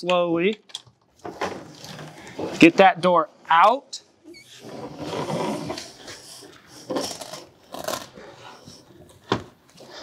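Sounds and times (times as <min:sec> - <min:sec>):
panel scraping against frame: 0:04.3 - 0:06.2.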